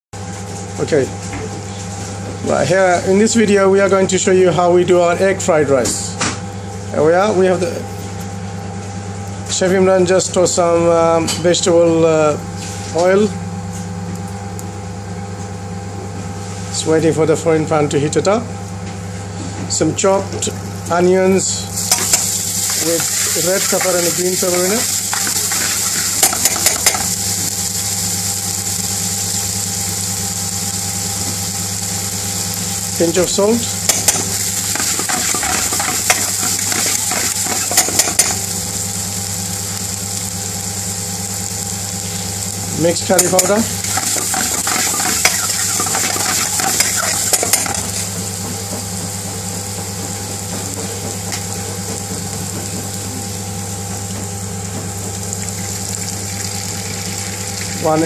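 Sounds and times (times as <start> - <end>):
steady low hum: 0.2 - 58.0
vegetables sizzling in oil: 21.8 - 58.0.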